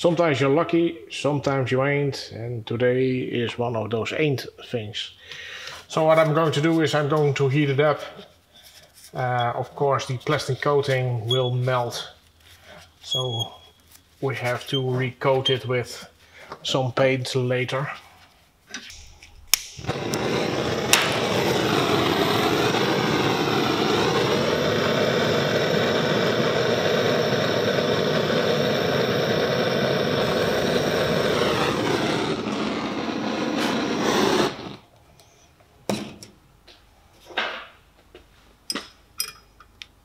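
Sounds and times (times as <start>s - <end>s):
torch igniter click: 18.9s - 34.8s
gas torch flame roaring: 18.9s - 34.9s.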